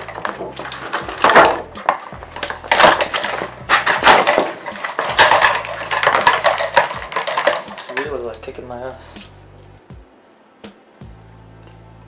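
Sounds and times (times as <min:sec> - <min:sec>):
plastic packaging crinkling: 0:00.0 - 0:09.1.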